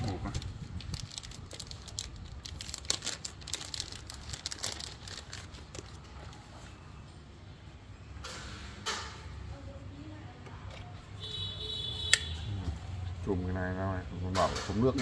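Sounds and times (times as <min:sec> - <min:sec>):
plastic crinkling and clicking: 0:00.3 - 0:06.4.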